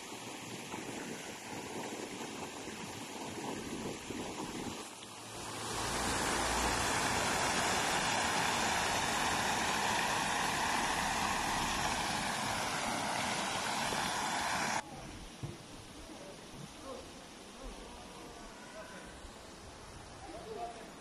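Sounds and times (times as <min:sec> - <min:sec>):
fountain splashing into basin: 0:00.0 - 0:14.8.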